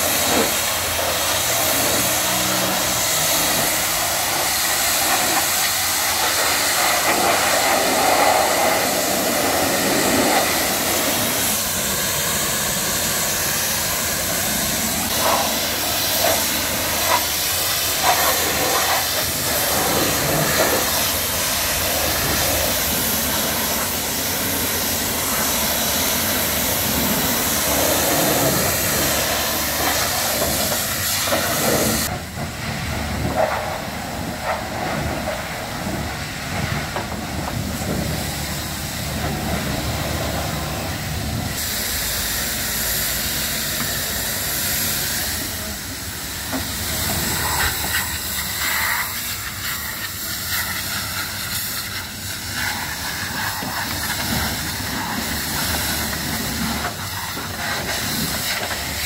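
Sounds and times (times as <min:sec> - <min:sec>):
pressure washer spray hissing: 0:00.0 - 0:59.0.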